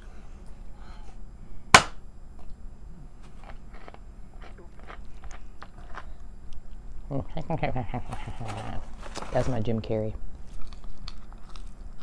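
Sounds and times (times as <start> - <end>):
sharp knock: 1.7 - 2.0
person chewing food: 3.2 - 6.8, 10.4 - 12.0.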